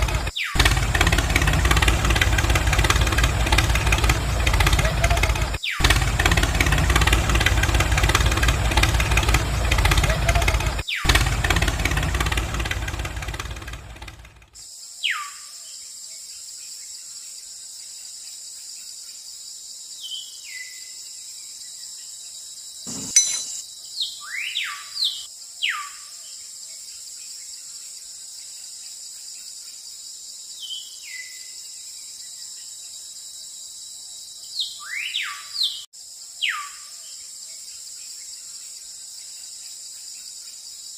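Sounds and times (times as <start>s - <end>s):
loud engine running: 0.0s - 14.6s.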